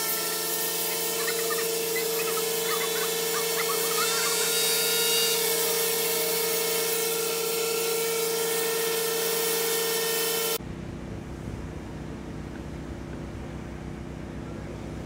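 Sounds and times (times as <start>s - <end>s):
power tool whining: 0.0s - 10.6s.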